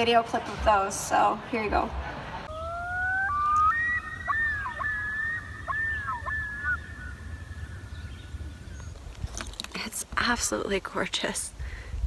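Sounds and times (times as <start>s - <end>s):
loon calling: 2.5s - 8.6s.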